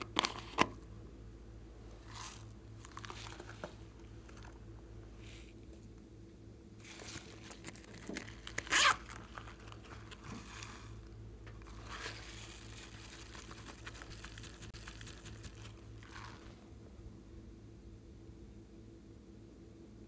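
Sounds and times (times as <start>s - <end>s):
zipper pulled open: 6.8s - 10.9s, 16.0s - 16.6s
pouch scraping and rustling: 6.8s - 11.0s, 11.6s - 16.6s.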